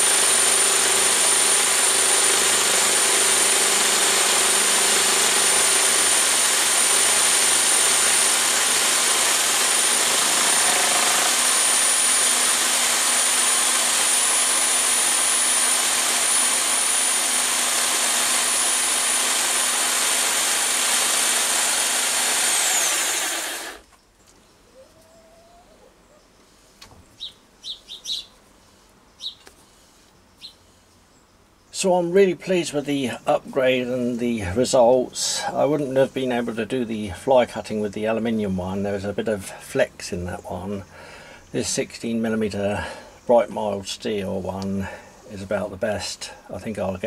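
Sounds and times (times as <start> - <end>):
electric drill whining: 0.0 - 23.8.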